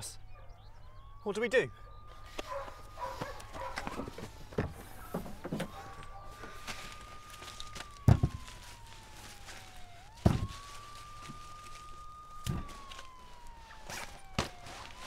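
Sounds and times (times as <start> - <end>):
police siren wailing: 0.0 - 15.0.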